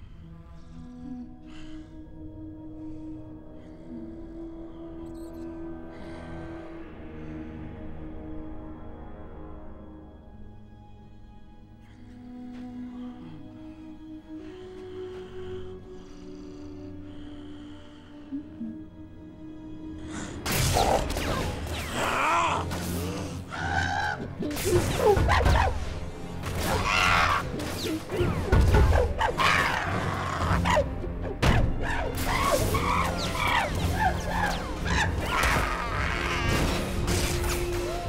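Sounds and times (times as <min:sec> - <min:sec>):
dramatic music: 0:00.0 - 0:38.0.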